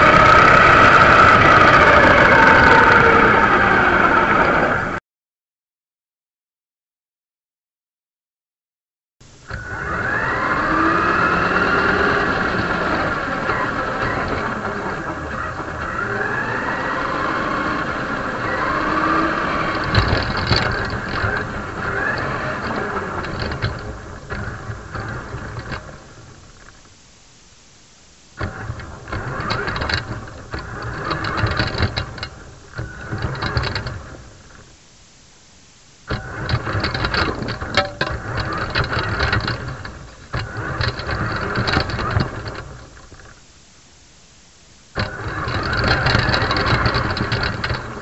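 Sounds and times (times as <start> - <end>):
model car motor whirring: 0.0 - 4.8, 9.5 - 26.8, 28.4 - 34.7, 36.1 - 43.4, 45.0 - 48.0
model car knocking and rattling: 18.8 - 26.9, 28.4 - 34.7, 36.1 - 43.4, 45.0 - 48.0.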